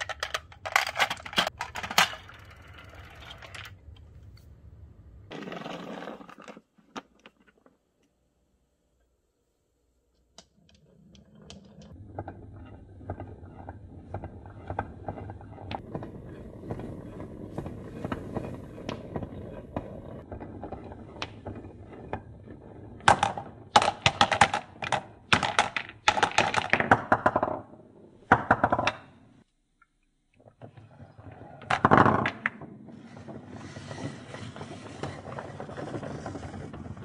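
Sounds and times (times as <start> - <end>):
marbles clacking into plastic bucket: 0.0 - 3.8
marbles rolling in wooden groove: 0.0 - 3.9, 5.3 - 7.8, 10.4 - 29.0, 30.6 - 37.0.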